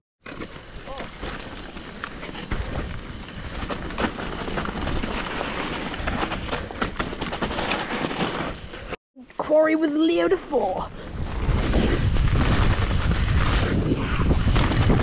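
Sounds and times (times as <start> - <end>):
tyres on dirt and stones: 0.2 - 15.0
bike rattling and knocking: 0.3 - 8.9.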